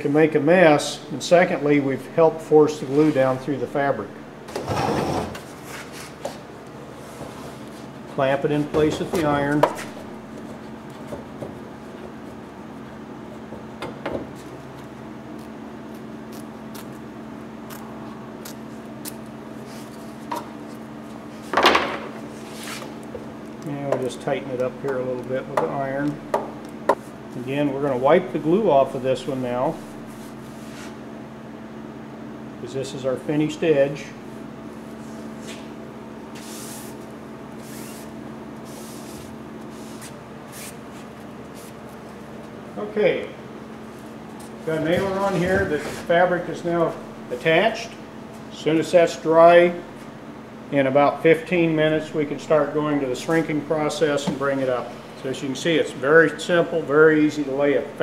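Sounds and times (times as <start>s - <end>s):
steady low hum: 0.0s - 58.0s
fabric rubbing under hands: 22.3s - 23.0s, 30.0s - 31.0s, 36.3s - 42.1s
cloth rag wiping: 29.8s - 31.0s, 37.6s - 41.8s.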